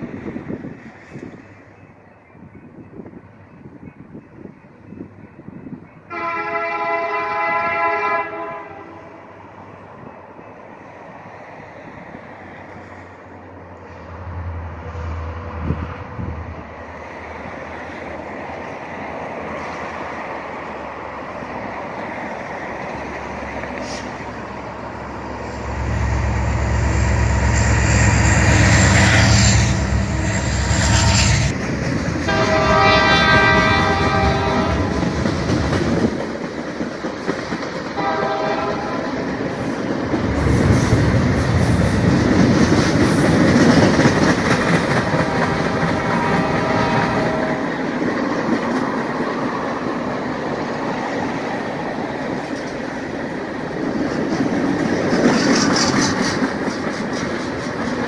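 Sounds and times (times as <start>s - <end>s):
train air horn blasts: 6.1s - 9.4s, 25.3s - 31.5s, 32.3s - 35.2s, 38.0s - 39.1s, 45.1s - 47.7s
locomotive engine rumbling: 8.3s - 58.0s
train wheel clatter: 25.9s - 58.0s.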